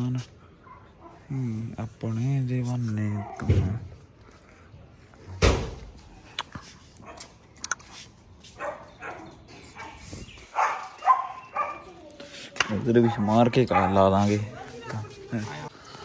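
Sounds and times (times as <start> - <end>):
dog barking: 0.6 - 1.3, 3.1 - 3.8, 7.0 - 7.3, 8.6 - 12.0, 13.0 - 14.5.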